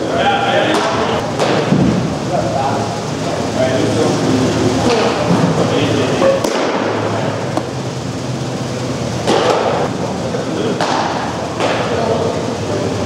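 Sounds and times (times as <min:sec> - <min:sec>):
baseballs being hit and caught: 0:00.6 - 0:02.1, 0:04.8 - 0:07.7, 0:09.2 - 0:09.9, 0:10.6 - 0:12.0.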